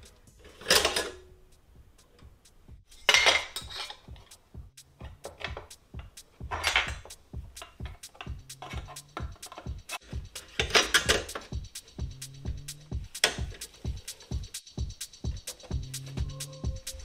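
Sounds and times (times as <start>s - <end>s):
metal clattering and scraping: 0.0s - 1.3s, 2.1s - 14.1s.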